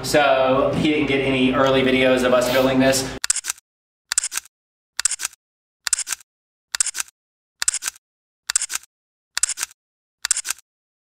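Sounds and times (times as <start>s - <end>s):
camera shutter clicks: 3.2s - 6.2s, 6.8s - 10.6s.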